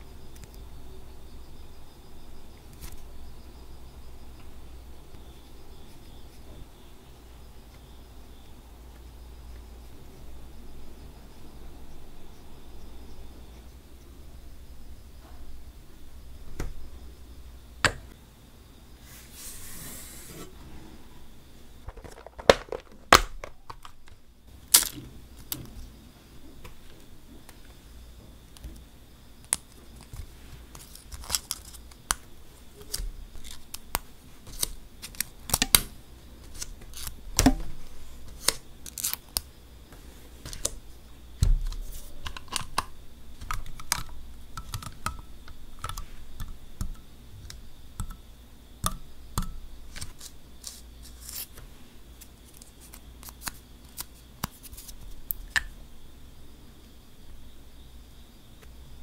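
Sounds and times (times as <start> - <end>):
plastic tips snapping: 41.5 - 48.2.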